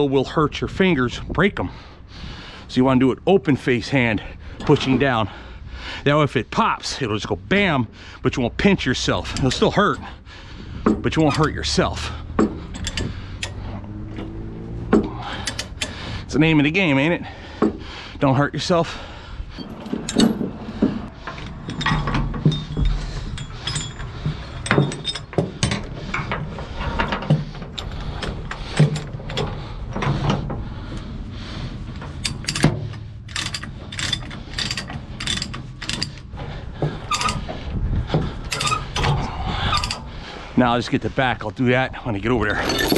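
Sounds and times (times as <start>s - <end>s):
heavy chain clinking and clanking: 8.9s - 17.8s, 18.5s - 40.2s, 42.2s - 42.9s.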